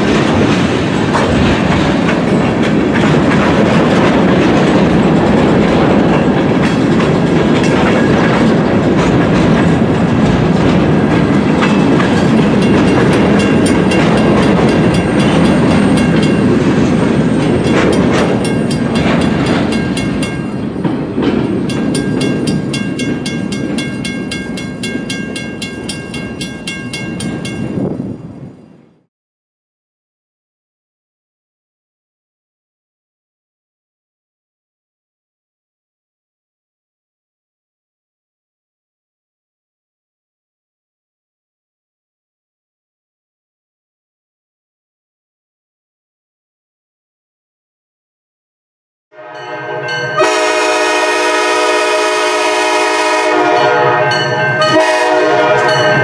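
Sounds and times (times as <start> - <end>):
freight train wheels clattering: 0.0 - 28.8.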